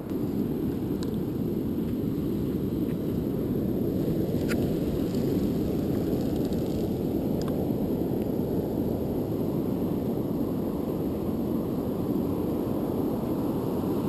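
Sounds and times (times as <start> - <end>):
wind on microphone: 0.0 - 14.0.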